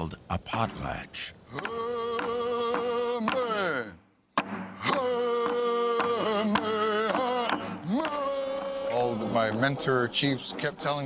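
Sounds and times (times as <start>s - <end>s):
men singing a chant: 1.5s - 4.0s, 4.8s - 9.5s
steady struck beat: 4.4s - 11.0s.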